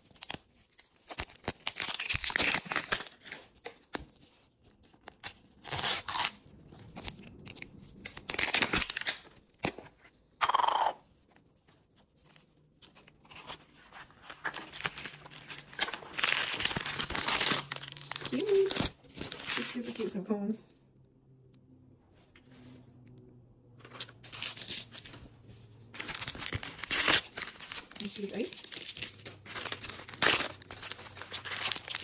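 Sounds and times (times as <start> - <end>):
plastic wrapper crackling and tearing: 0.0 - 9.7, 12.8 - 20.2, 23.8 - 25.2, 26.0 - 32.0.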